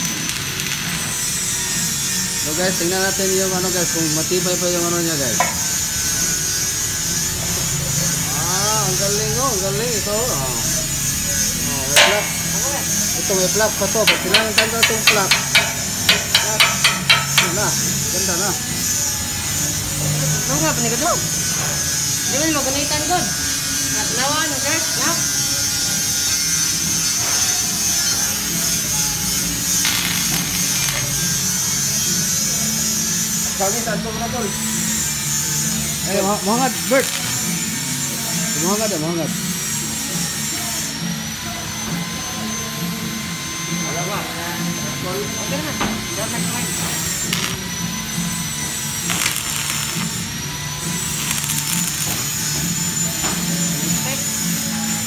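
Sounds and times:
arc welding crackle: 0.0 - 19.7, 25.9 - 39.7, 46.4 - 55.0.

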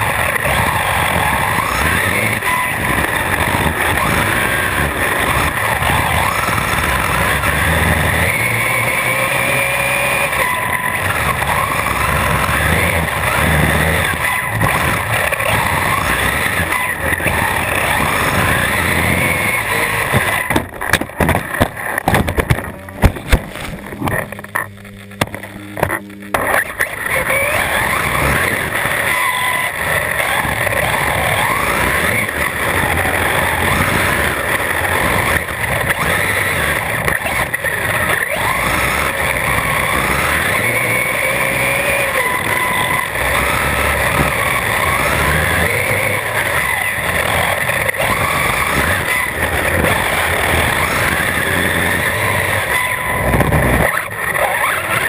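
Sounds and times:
drivetrain and tyre noise: 0.0 - 55.0
electric motor whine: 0.0 - 55.0
sharp knocks and thumps: 20.2 - 26.6.

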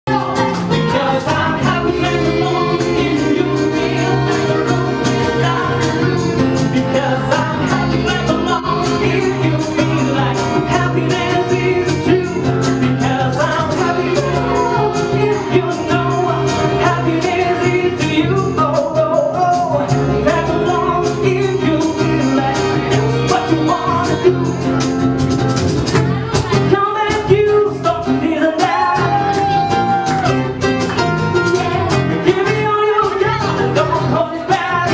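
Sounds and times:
man and woman singing: 0.1 - 24.7, 26.2 - 30.5, 31.3 - 34.9
acoustic guitar: 0.1 - 34.9
cajon beat: 0.1 - 34.9.

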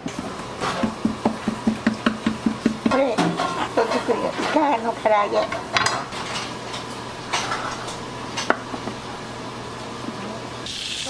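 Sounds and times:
steady low hum: 0.0 - 10.6
dishes and utensils clinking: 1.8 - 9.0.

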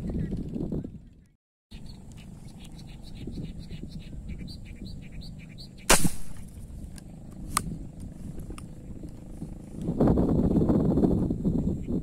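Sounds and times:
small birds chirping: 0.0 - 9.7
spear gun firing snap: 5.9 - 6.5.

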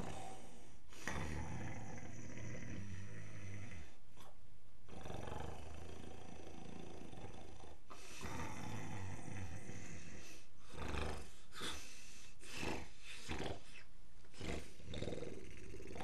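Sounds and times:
woman snoring: 4.9 - 11.8, 12.5 - 13.6, 14.4 - 16.0.

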